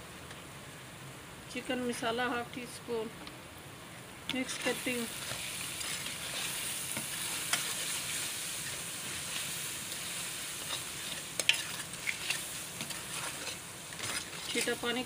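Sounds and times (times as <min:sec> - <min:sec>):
vegetables sizzling in hot oil: 0:04.3 - 0:15.0
spoon scraping metal pan: 0:04.5 - 0:15.0.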